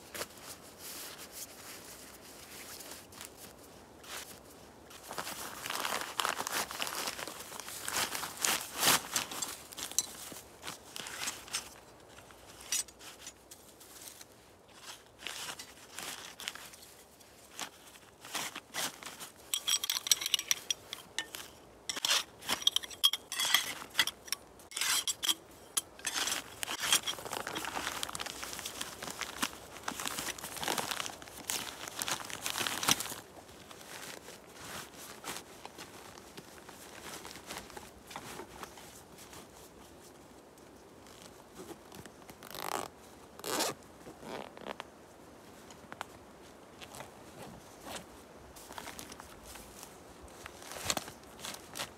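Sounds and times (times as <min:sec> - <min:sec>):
fabric sack rustling: 0:00.0 - 0:21.5, 0:26.0 - 0:39.8, 0:41.0 - 0:44.8
dry leaves rustling: 0:00.0 - 0:40.3
metal tent stakes clinking: 0:05.7 - 0:33.2.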